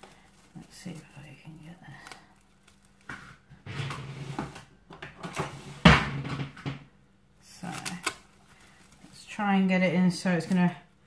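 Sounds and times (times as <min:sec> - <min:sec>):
cling film rustling: 0:00.0 - 0:03.6, 0:07.4 - 0:11.0.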